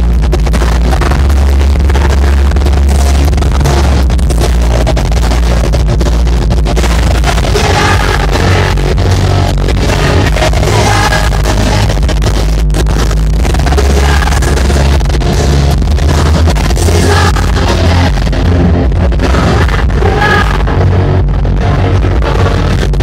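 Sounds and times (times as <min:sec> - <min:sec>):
lead vocal singing: 0:06.9 - 0:12.4, 0:13.4 - 0:21.2.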